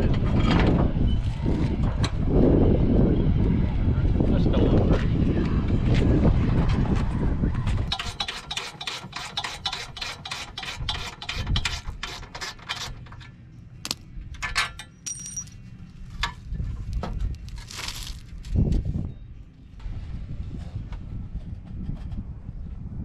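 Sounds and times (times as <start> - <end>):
wind on microphone: 0.0 - 8.2, 10.6 - 12.0, 16.1 - 23.0
light metal clinks: 14.6 - 15.6.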